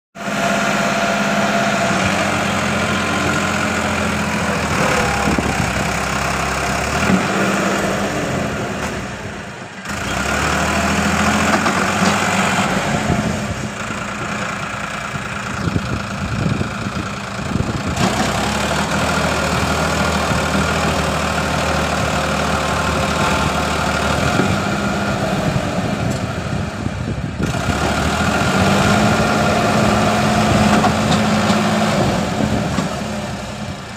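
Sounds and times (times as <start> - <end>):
diesel tractor engine under load: 0.2 - 33.9.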